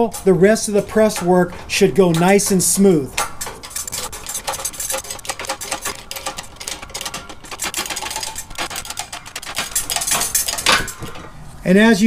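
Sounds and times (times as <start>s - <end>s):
bottle jack press clicking: 3.2s - 11.4s.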